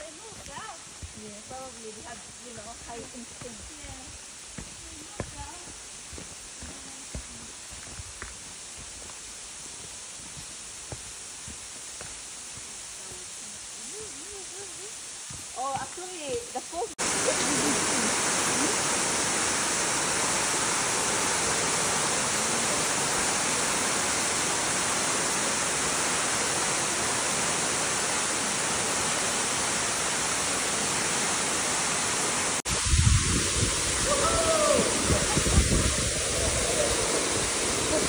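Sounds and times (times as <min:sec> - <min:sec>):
waterfall rushing: 0:00.0 - 0:38.0
wind rumbling on microphone: 0:32.7 - 0:38.0.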